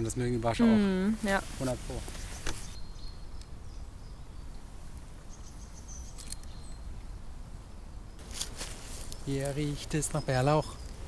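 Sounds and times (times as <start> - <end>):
faint bird chirps: 2.1 - 8.2, 8.9 - 11.0
small sharp clicks: 6.1 - 6.6.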